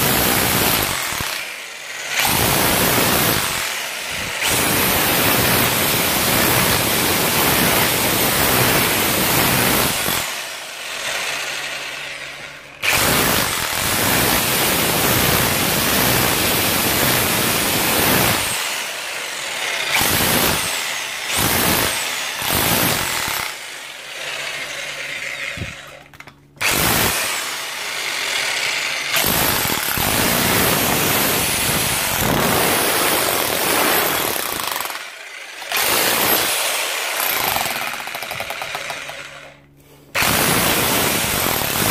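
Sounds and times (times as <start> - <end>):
hammer drill chiselling masonry: 0.0 - 41.9.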